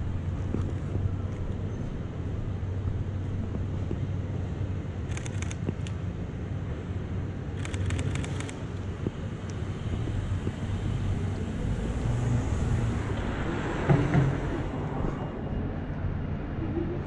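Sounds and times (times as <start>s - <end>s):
camera shutter clicking: 5.1s - 6.0s, 7.6s - 8.6s.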